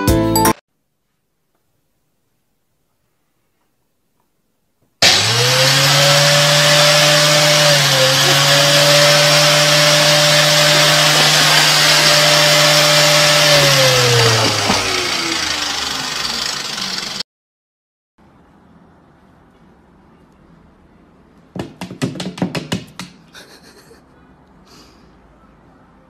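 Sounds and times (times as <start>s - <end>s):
vacuum cleaner running: 5.0s - 17.2s.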